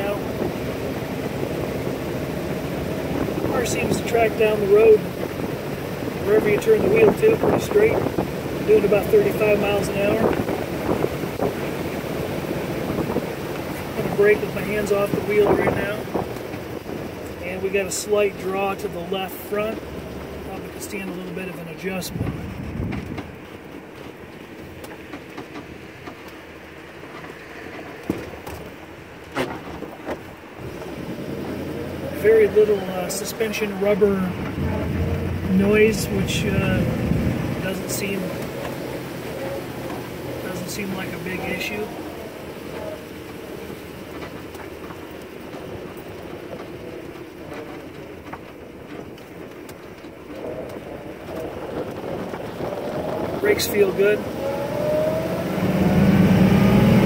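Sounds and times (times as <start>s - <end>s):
car engine and road noise: 0.0s - 57.0s
car knocks and rattles: 19.6s - 31.7s
faint clicks and rattles: 42.4s - 54.1s.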